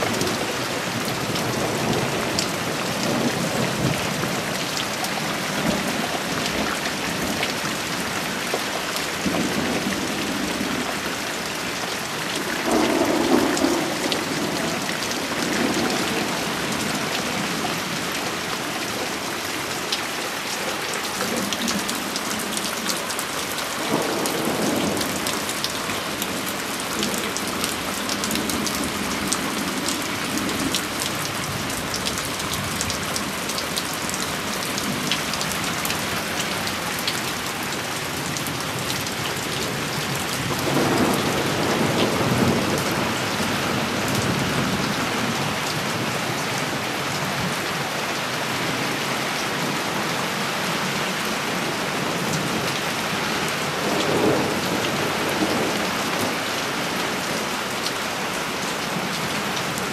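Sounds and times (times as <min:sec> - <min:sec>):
rain splashing on boards and grass: 0:00.0 - 0:59.9
thunder rumbling: 0:12.5 - 0:18.0, 0:39.7 - 0:45.4
raindrops clicking near microphone: 0:19.8 - 0:42.9.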